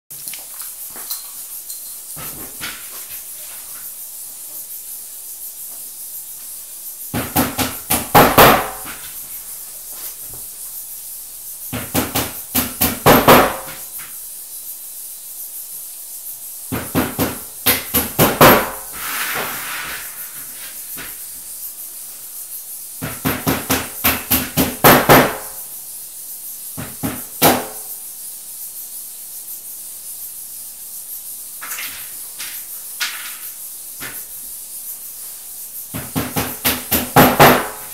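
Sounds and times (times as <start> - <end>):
hammer tapping on furniture parts: 7.1 - 9.0, 11.7 - 13.8, 16.7 - 18.8, 23.0 - 25.5, 26.8 - 27.8, 35.9 - 37.8.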